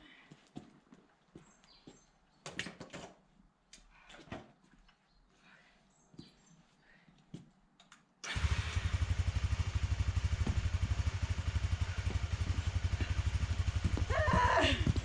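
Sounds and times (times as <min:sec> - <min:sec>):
motorcycle engine idling: 0:08.3 - 0:15.0.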